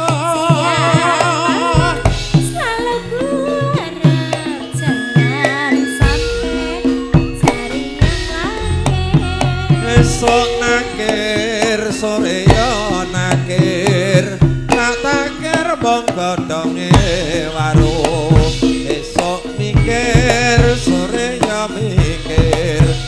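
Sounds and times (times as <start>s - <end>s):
woman singing: 0.0s - 14.0s
gamelan music: 0.0s - 23.0s
sustained pitched tones: 0.0s - 23.0s.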